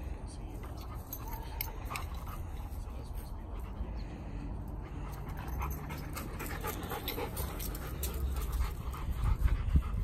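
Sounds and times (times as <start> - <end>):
dog panting hard: 4.8 - 10.0.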